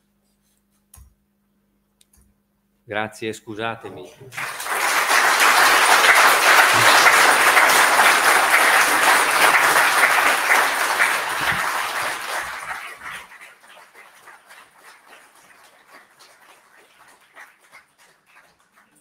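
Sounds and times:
audience applauding: 0:04.2 - 0:19.0.

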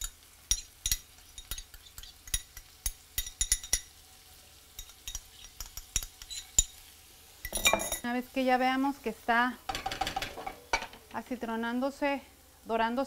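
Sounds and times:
onion sizzling in oil: 0:00.0 - 0:13.0
metal spoon clinking on bowl: 0:07.4 - 0:08.0.

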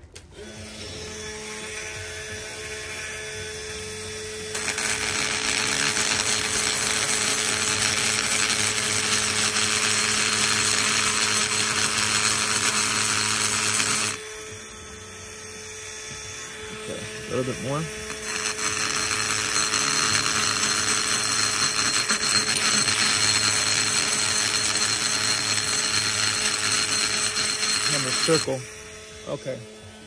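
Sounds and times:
rotary tool whine: 0:03.6 - 0:30.0
burr grinding metal: 0:04.6 - 0:14.2, 0:16.6 - 0:28.6.

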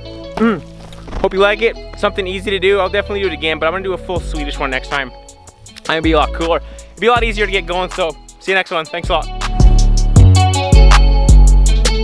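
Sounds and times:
music with heavy bass drum beat: 0:04.2 - 0:12.0.

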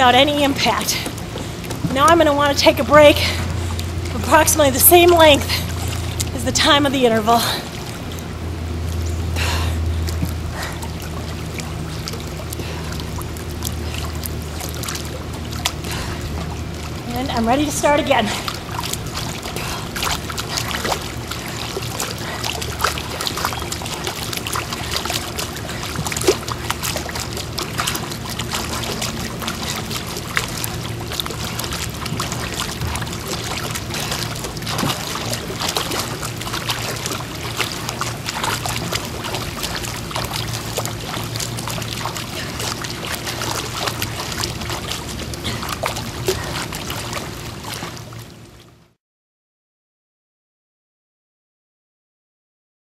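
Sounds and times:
pool water splashing: 0:00.0 - 0:49.0
steady low hum: 0:00.0 - 0:49.0.

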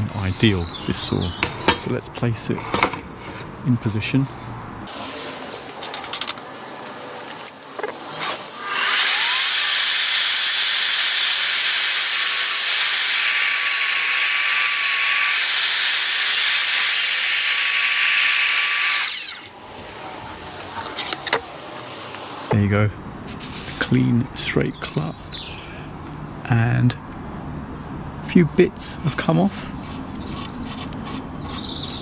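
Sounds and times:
mitre saw whining: 0:08.5 - 0:20.8.

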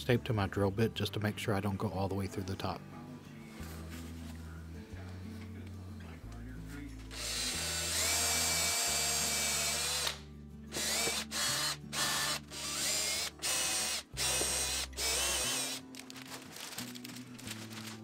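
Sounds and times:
power drill boring into wood: 0:07.1 - 0:15.8.

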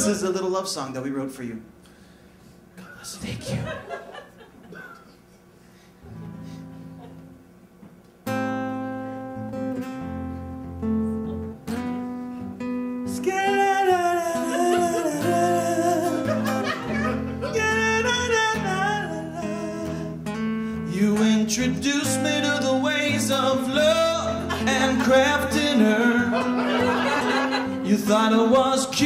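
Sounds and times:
acoustic guitar playing: 0:00.0 - 0:00.6, 0:05.6 - 0:29.0
man singing: 0:13.0 - 0:20.2, 0:20.8 - 0:29.0.

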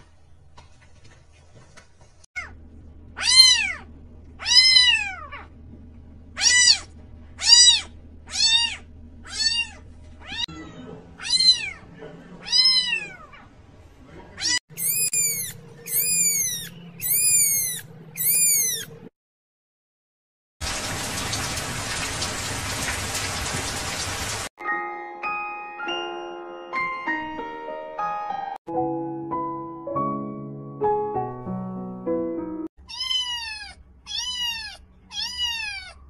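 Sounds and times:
cats meowing: 0:03.2 - 0:05.5, 0:06.4 - 0:13.5, 0:14.4 - 0:19.1, 0:32.8 - 0:36.0
newborn kittens mewing: 0:03.2 - 0:05.5, 0:06.4 - 0:11.8, 0:12.4 - 0:13.5, 0:14.4 - 0:19.0, 0:32.8 - 0:36.0.

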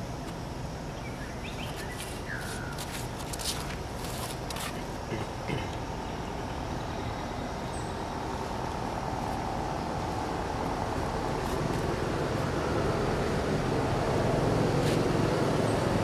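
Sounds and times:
motor vehicle rumble: 0:00.0 - 0:16.0.

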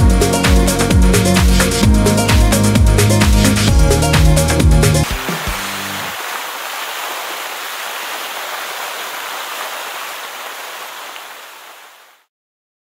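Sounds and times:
waterfall rushing: 0:05.0 - 0:12.2.

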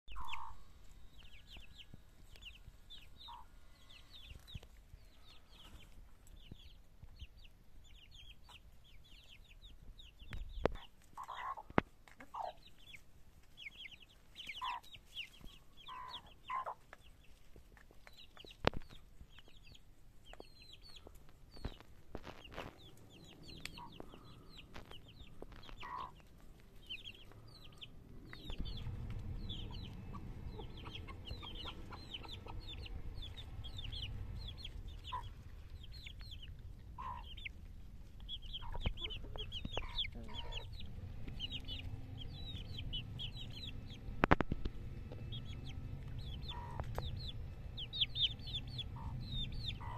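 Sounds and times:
hens clucking: 0:00.1 - 0:06.8, 0:08.0 - 0:49.9
chicks peeping: 0:00.1 - 0:49.9
low rumble: 0:20.5 - 0:49.9.

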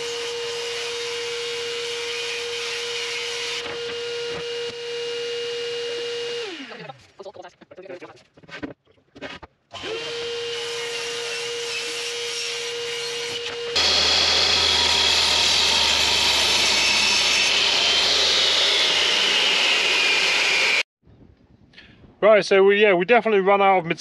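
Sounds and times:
mitre saw cutting wood: 0:00.0 - 0:07.0, 0:09.8 - 0:20.9
power saw motor humming: 0:12.6 - 0:20.9.

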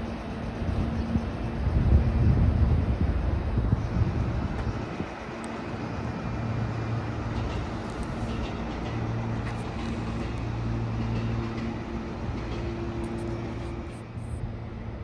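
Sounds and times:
electric train equipment hum: 0:00.0 - 0:15.0.

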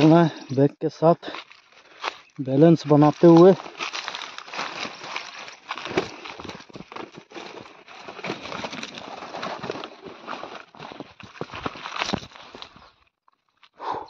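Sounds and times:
footsteps crunching through dry leaves: 0:00.0 - 0:13.8.

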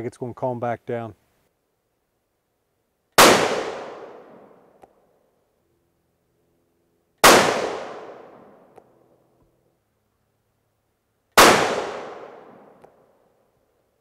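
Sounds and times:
rifle shots echoing: 0:03.2 - 0:04.6, 0:07.2 - 0:08.8, 0:11.4 - 0:13.0
faint sharp tick: 0:04.8 - 0:05.0.

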